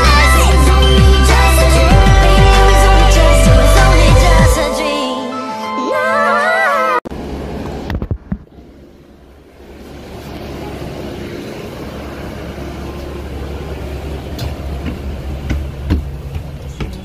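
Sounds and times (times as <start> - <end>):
bus engine rumble: 7.1 - 17.0
sharp clicks and knocks: 14.4 - 17.0.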